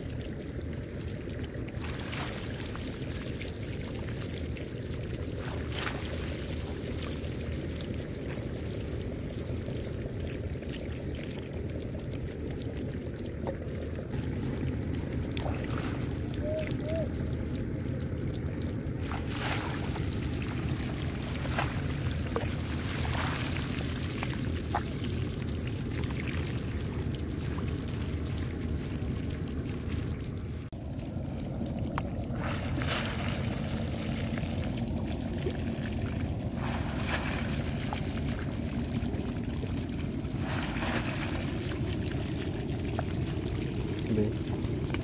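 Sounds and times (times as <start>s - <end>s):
steady low rumble: 0.0s - 45.0s
water pouring and splashing: 0.0s - 45.0s
small splashes: 1.6s - 9.5s, 13.4s - 17.1s, 19.0s - 30.3s, 32.3s - 45.0s.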